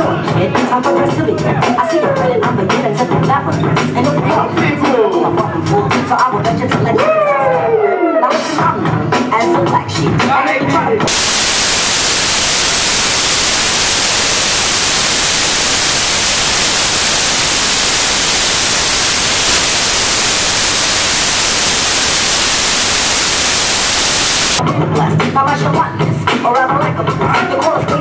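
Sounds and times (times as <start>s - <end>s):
loud static hiss: 11.1s - 24.6s.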